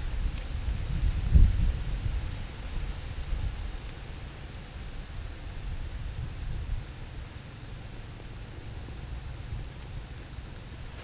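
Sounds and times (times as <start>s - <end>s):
outdoor hiss: 0.0s - 11.0s
wind rumbling on microphone: 0.0s - 11.0s.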